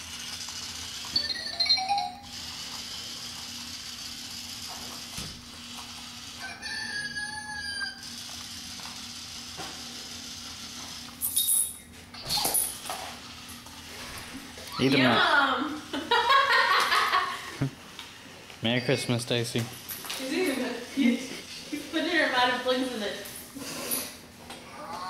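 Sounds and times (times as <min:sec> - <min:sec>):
robotic toy whirring: 0:00.0 - 0:13.6
electronic squeaks and chirps: 0:01.1 - 0:02.3, 0:11.2 - 0:12.4.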